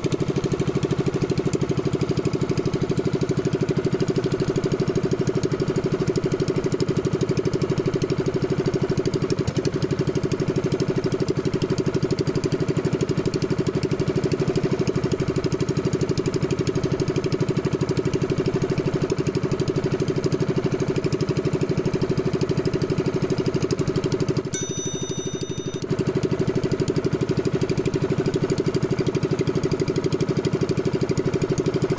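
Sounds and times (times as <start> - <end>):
boat engine chugging: 26.8 - 31.9.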